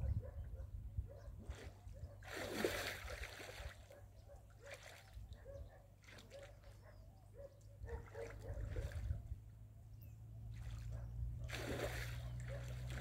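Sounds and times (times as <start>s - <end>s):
small waves lapping at shoreline: 1.5s - 4.0s, 4.6s - 5.3s, 6.0s - 6.8s, 10.5s - 13.0s.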